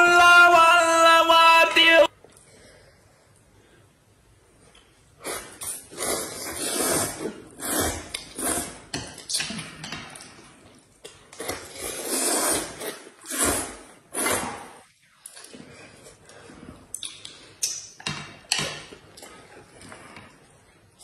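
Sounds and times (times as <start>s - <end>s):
people slurping noodles: 5.2s - 10.2s, 11.4s - 17.2s.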